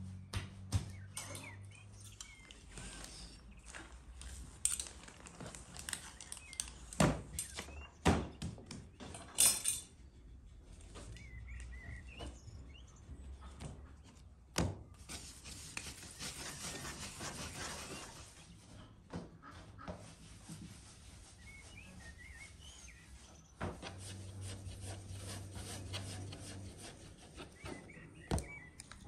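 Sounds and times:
birds chirping faintly: 0:00.0 - 0:29.0
hands rubbing dough: 0:15.0 - 0:18.6, 0:20.1 - 0:28.7
dough scraper scraping basin: 0:23.7 - 0:28.6.

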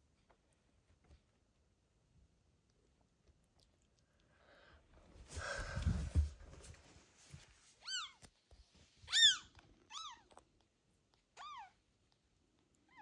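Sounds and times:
rustling with low bumps: 0:05.1 - 0:07.6.

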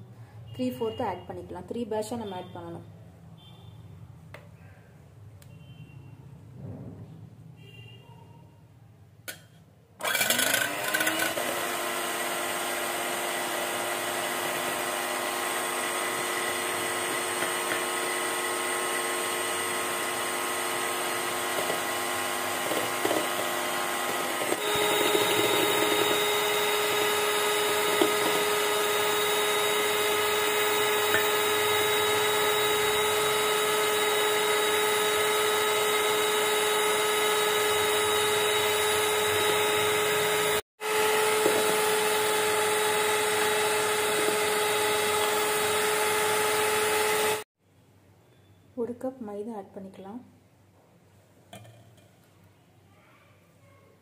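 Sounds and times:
electric hand mixer whine: 0:10.0 - 0:47.5.

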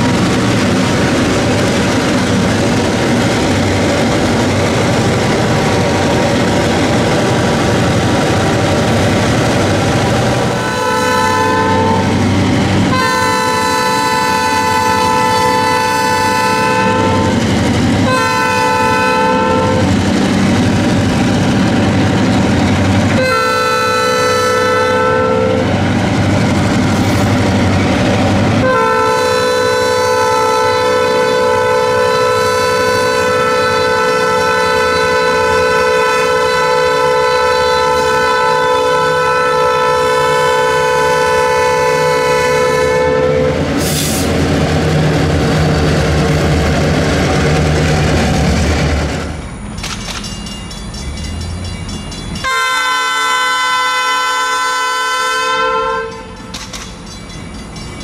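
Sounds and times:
moving train rumble: 0:00.0 - 0:58.0
locomotive horn blasts: 0:10.5 - 0:12.2, 0:12.9 - 0:17.4, 0:18.0 - 0:19.9, 0:23.1 - 0:25.8, 0:28.6 - 0:43.7, 0:52.4 - 0:56.6.

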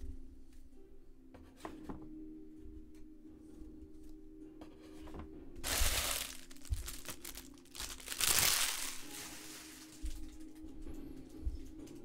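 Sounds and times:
plastic wrapper crinkling: 0:05.6 - 0:10.2.

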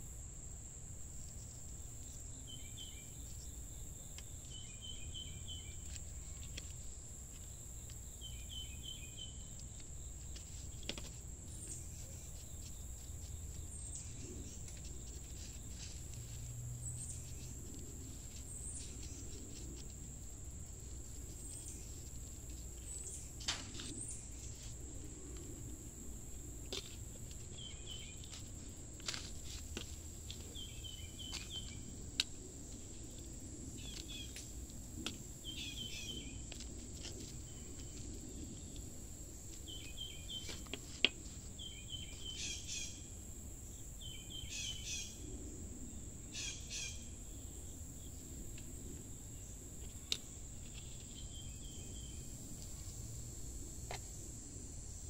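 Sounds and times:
high insect trill: 0:00.0 - 0:55.0
bird chirping: 0:02.0 - 0:06.7, 0:07.3 - 0:10.7, 0:27.5 - 0:28.3, 0:30.4 - 0:31.9, 0:35.4 - 0:36.4, 0:39.6 - 0:40.7, 0:41.6 - 0:43.1, 0:44.0 - 0:45.2, 0:50.7 - 0:52.3.

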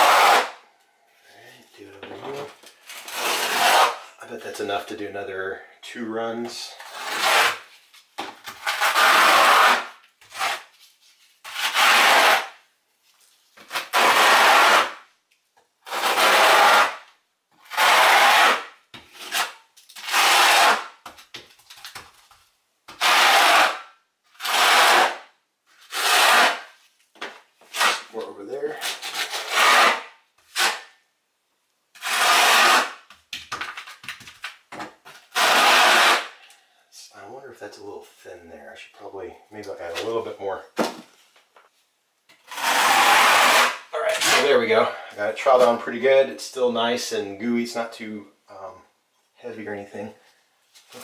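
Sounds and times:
trowel scraping mortar: 0:00.0 - 0:00.5, 0:03.0 - 0:04.1, 0:06.7 - 0:07.7, 0:08.5 - 0:10.7, 0:11.4 - 0:12.5, 0:13.8 - 0:15.0, 0:15.9 - 0:17.0, 0:17.6 - 0:20.8, 0:22.9 - 0:23.8, 0:24.4 - 0:25.2, 0:25.8 - 0:26.7, 0:27.6 - 0:30.9, 0:32.0 - 0:33.0, 0:35.2 - 0:36.4, 0:42.4 - 0:44.8.

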